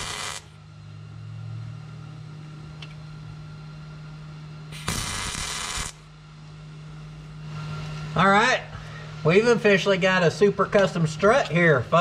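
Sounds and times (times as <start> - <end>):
welding arc burst: 0.0 - 0.6, 4.7 - 6.1
steady low hum: 0.0 - 12.0.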